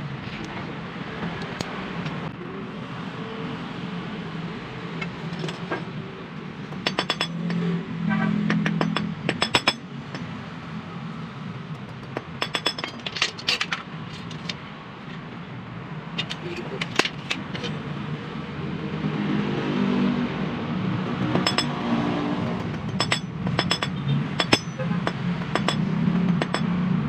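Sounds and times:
metal parts clanking on concrete: 5.0s - 6.0s, 6.6s - 7.8s, 8.5s - 10.3s, 12.0s - 15.2s, 16.1s - 17.8s, 21.3s - 21.7s, 22.6s - 26.7s.

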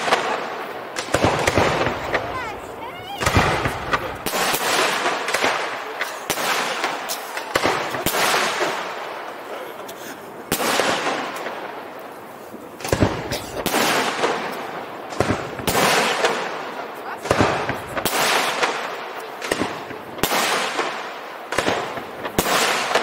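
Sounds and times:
firework shells bursting: 0.0s - 9.5s.

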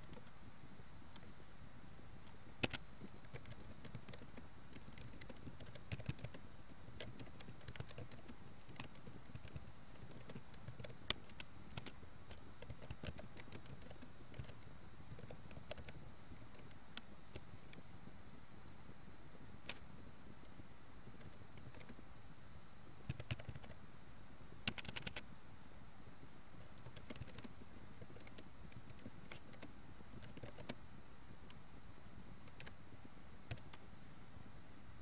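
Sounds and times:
faint steady hiss: 0.0s - 35.0s
keyboard key clicks: 24.7s - 25.2s.

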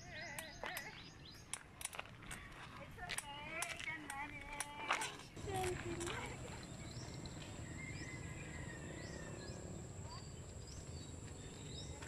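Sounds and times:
bird chirps: 5.4s - 12.0s.

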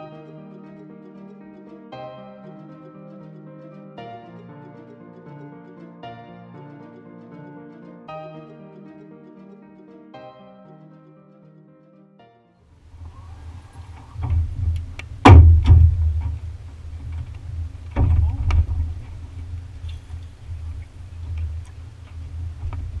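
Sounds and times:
wind rumbling on microphone: 12.9s - 23.0s
knocks against metal boat: 15.2s - 16.4s.

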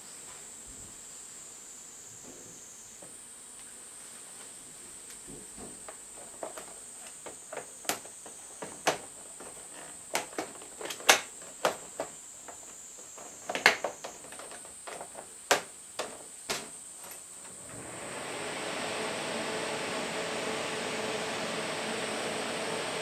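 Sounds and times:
plastic clicks and knocks: 5.3s - 17.2s.

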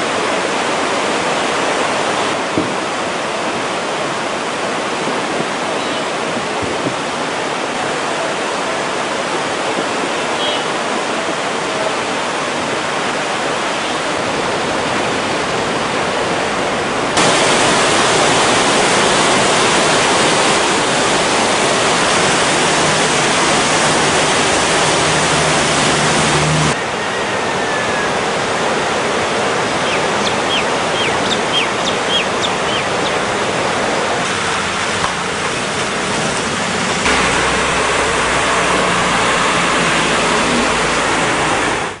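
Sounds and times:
river rushing: 0.0s - 42.0s.

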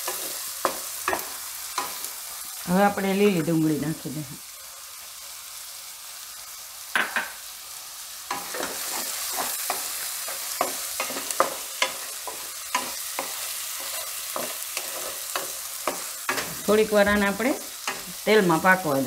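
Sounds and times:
onions sizzling in hot oil: 0.0s - 19.0s
spatula scraping pan: 8.3s - 18.2s.

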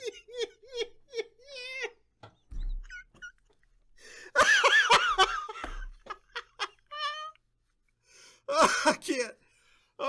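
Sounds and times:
man laughing hard: 0.0s - 2.1s, 4.3s - 7.4s.

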